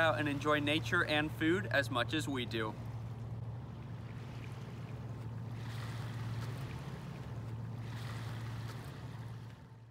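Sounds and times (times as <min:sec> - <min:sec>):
low engine drone: 0:00.0 - 0:09.9
water washing on stony shore: 0:03.8 - 0:09.7.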